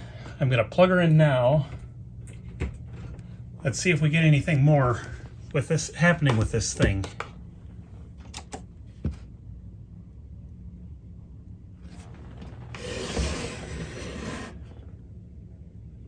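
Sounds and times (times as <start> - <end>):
low mains hum: 0.0 - 16.0.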